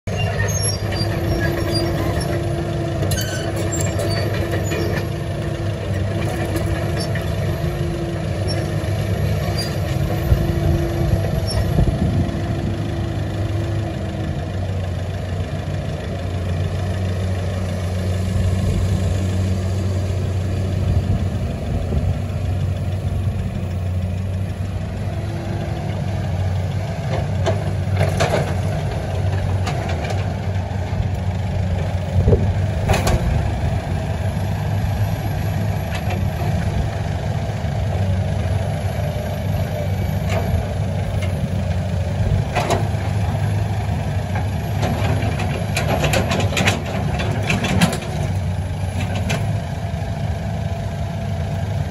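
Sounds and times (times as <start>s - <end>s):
excavator diesel engine running: 0.0s - 51.9s.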